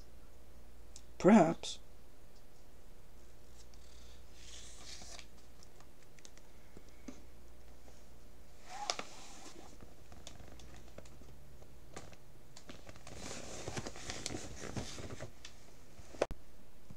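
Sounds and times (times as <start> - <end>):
faint rustling and crinkling: 6.7 - 16.3.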